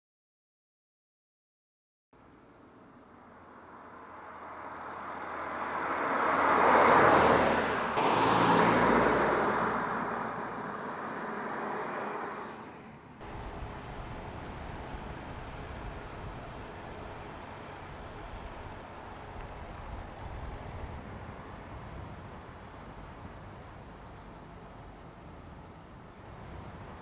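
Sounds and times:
engine and road noise: 2.2s - 27.0s
car driving by: 3.5s - 21.5s.

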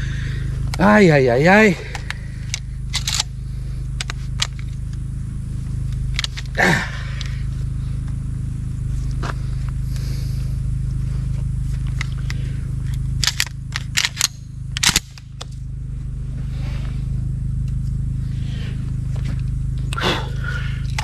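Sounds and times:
low rumble: 0.0s - 21.0s
shotgun metallic clicks and clacks: 2.9s - 3.3s, 13.2s - 15.5s.

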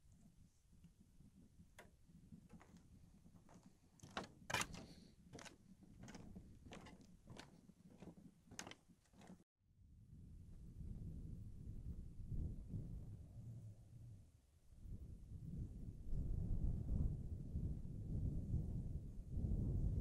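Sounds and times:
footsteps on wooden boardwalk: 2.3s - 9.4s.

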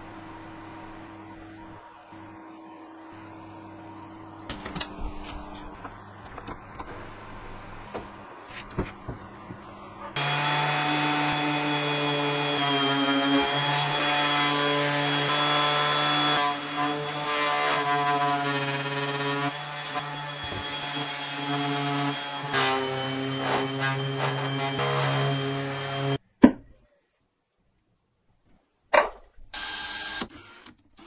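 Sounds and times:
orbital sander sanding wood: 10.2s - 26.2s.

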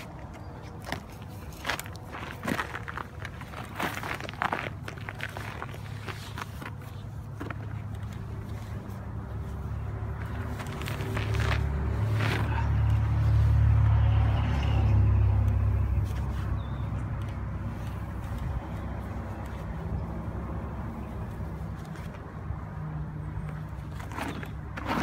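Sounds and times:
vehicle passing rumble: 0.0s - 25.0s.

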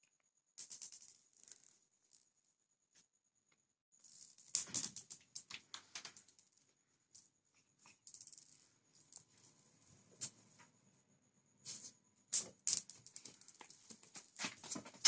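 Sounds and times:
cats scuffling on a hard floor: 13.2s - 15.0s.

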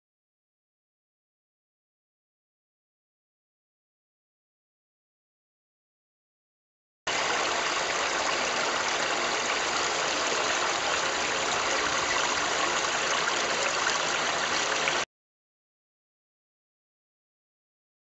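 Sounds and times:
water rushing through a grille: 7.1s - 15.1s.

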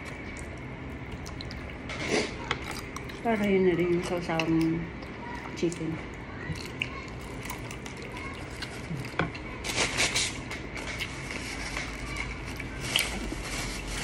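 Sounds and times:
person chewing fried chicken: 0.0s - 4.2s, 6.4s - 9.6s, 10.2s - 14.0s
tissue paper rustling: 12.8s - 14.0s.

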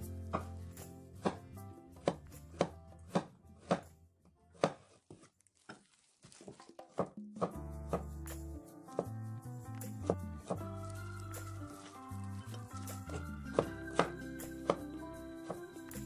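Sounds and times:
cleaver knocking on cutting board: 13.1s - 14.9s.

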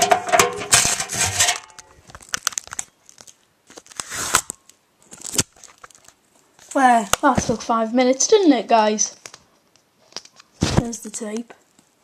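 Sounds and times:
tape tearing: 0.6s - 6.2s.

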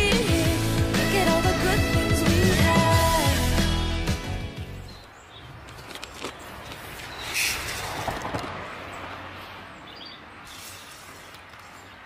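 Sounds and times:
small birds chirping: 4.7s - 8.2s, 8.8s - 12.0s.

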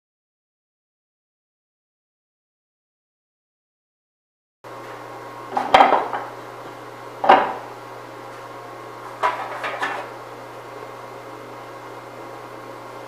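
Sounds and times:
steady hum: 4.7s - 13.0s.

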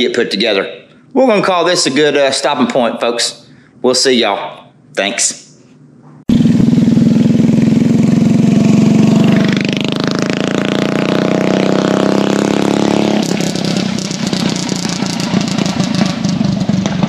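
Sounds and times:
engine running and revving: 6.3s - 17.0s.

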